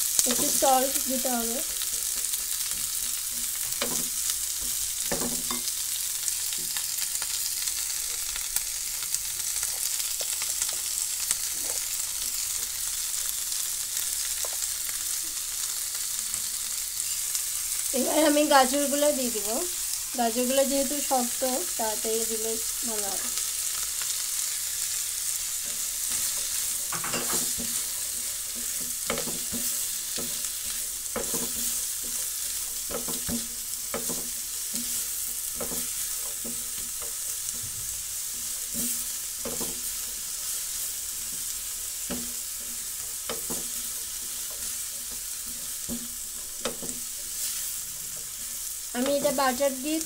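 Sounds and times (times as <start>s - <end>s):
vegetables sizzling in a pan: 0.0s - 50.0s
spatula tossing food: 23.1s - 49.8s.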